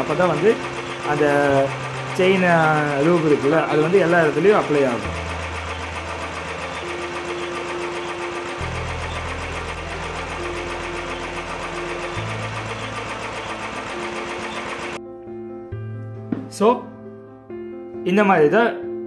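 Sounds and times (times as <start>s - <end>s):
drive chain ticking: 0.0s - 15.0s
motorcycle engine running: 0.0s - 15.0s.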